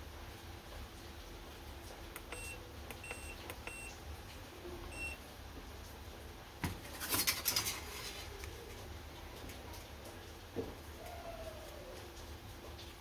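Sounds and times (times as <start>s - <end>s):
short high beeps: 2.3s - 3.9s.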